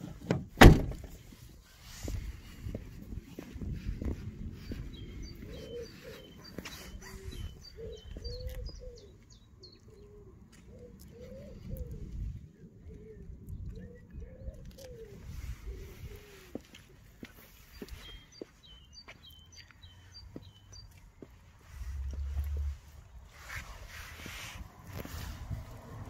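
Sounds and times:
small birds chirping: 0:04.1 - 0:24.3
bird cooing: 0:05.4 - 0:12.2, 0:12.8 - 0:16.6.

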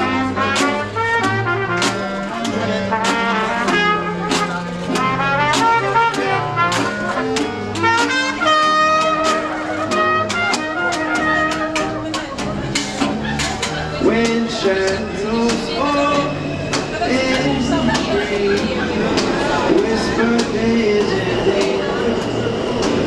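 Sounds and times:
trumpet: 0:00.0 - 0:12.2
clarinet: 0:00.0 - 0:18.2
upright bass: 0:00.0 - 0:22.0
percussion beat: 0:00.0 - 0:22.2
guitar: 0:00.0 - 0:23.0.

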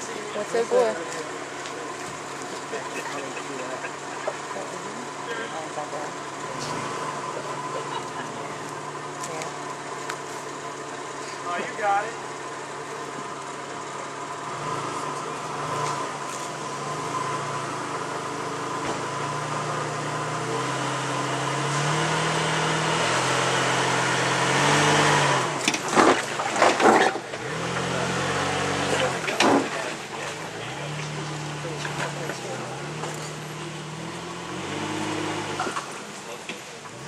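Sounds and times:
car engine at low speed: 0:00.0 - 0:37.0.

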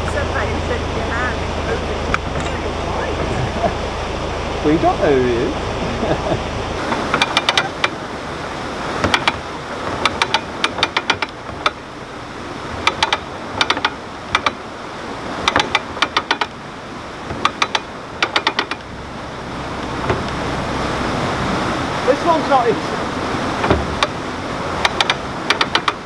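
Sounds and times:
ratchet pawl clicking: 0:07.1 - 0:08.0, 0:09.0 - 0:11.8, 0:12.8 - 0:14.6, 0:15.4 - 0:16.5, 0:17.4 - 0:18.9, 0:24.8 - 0:26.0.

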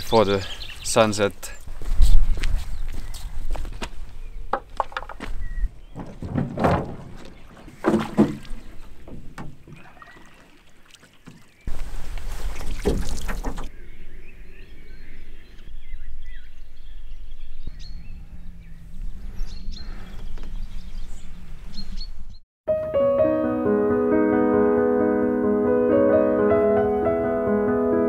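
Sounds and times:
small birds chirping: 0:00.0 - 0:06.3, 0:08.4 - 0:22.4
canoe scraping on pebbles: 0:04.8 - 0:13.7
paddle splashing in water: 0:06.0 - 0:13.7.

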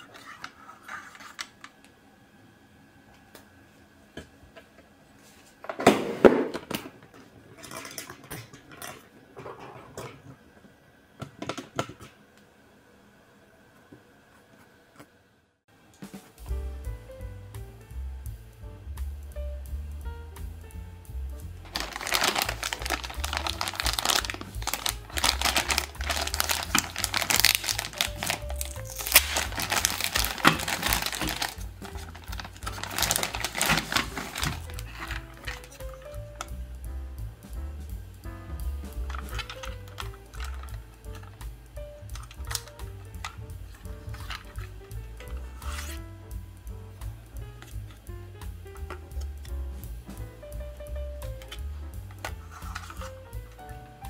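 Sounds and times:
plastic toy rustling: 0:00.0 - 0:01.8, 0:21.6 - 0:36.6, 0:38.9 - 0:41.4, 0:42.0 - 0:46.0, 0:51.3 - 0:54.0
background music: 0:16.0 - 0:54.0
plastic packaging crinkling: 0:21.6 - 0:36.5, 0:39.1 - 0:41.4, 0:42.1 - 0:44.8, 0:51.4 - 0:53.8.

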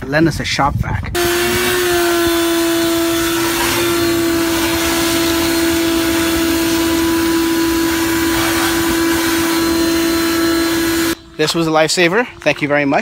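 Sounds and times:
shop vac running: 0:01.2 - 0:11.2
vacuuming water and glass: 0:01.2 - 0:12.0.

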